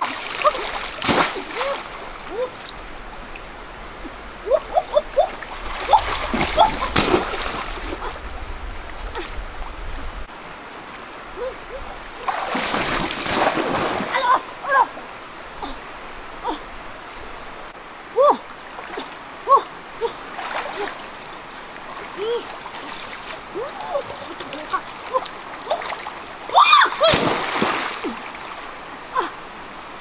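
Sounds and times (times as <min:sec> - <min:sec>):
water pouring off basket: 0:00.0 - 0:01.9, 0:05.4 - 0:08.0, 0:12.3 - 0:14.1, 0:27.0 - 0:28.0
stream running: 0:00.0 - 0:30.0.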